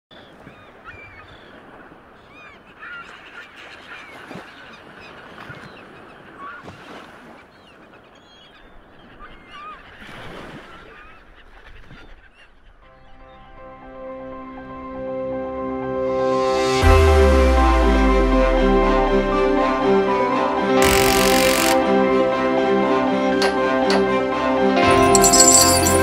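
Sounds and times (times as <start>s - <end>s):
seagulls calling: 0.4s - 13.6s.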